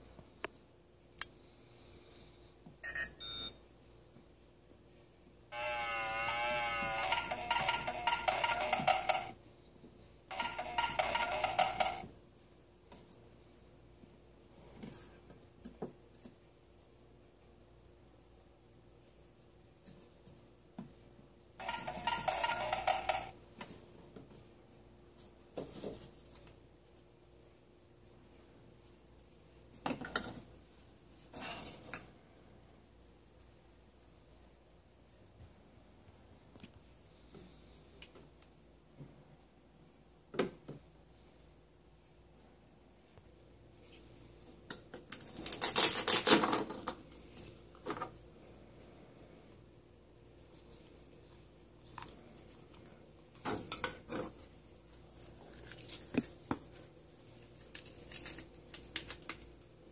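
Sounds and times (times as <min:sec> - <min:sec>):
velcro tearing: 0:45.4 - 0:46.5.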